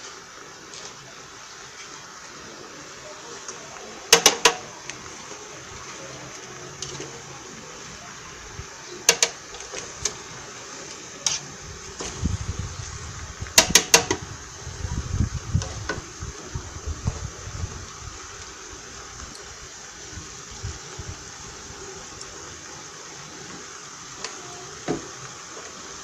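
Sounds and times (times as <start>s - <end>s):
steady hiss: 0.0s - 26.0s
spoon stirring leaves in a pot: 3.4s - 7.2s, 8.9s - 12.2s, 13.5s - 14.2s.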